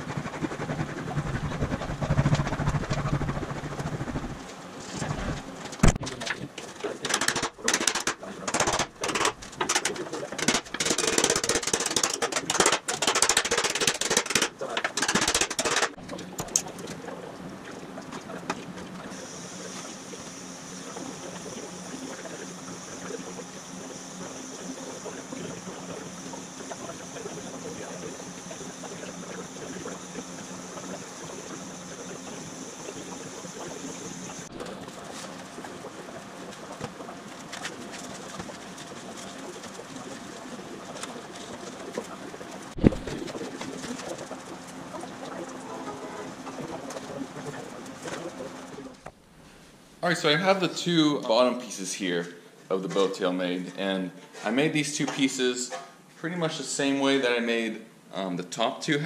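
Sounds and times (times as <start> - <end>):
gas welding torch hissing: 19.1 - 34.5.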